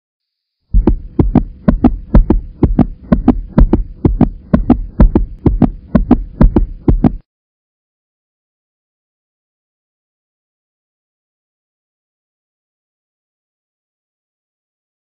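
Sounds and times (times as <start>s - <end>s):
faint steady hum: 0.8s - 7.2s
heartbeat thumps: 0.8s - 7.2s.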